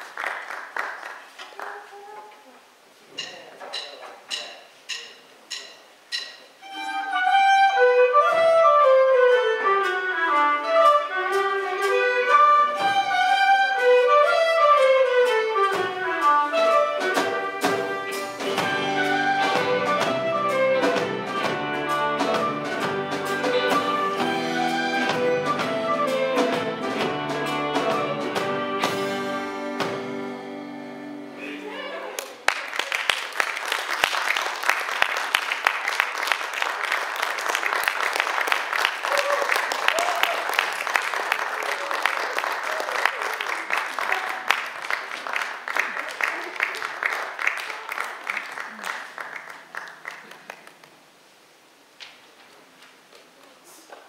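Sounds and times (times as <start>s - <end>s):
ringing struck notes: 3.2s - 6.8s
fiddle melody: 6.6s - 32.2s.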